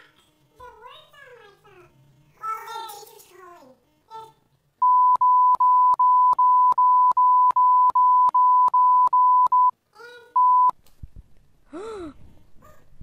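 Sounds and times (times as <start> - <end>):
high-pitched censor bleep: 4.8 - 9.7, 10.4 - 10.7.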